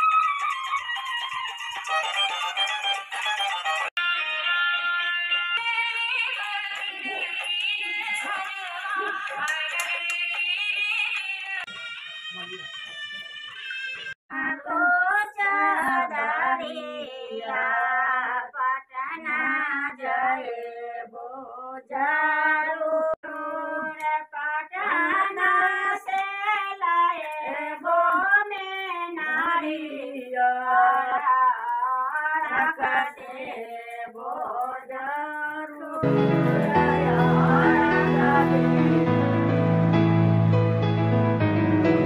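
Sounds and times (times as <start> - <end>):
woman singing folk song unaccompanied: 14.3 - 38.8.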